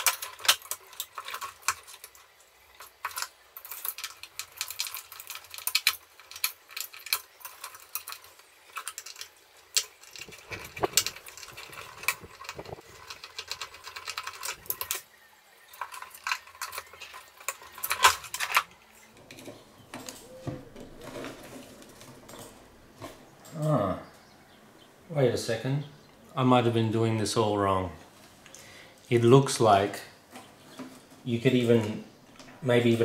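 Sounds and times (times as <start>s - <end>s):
clicks and metallic rattles: 0.0s - 15.1s, 15.7s - 23.6s.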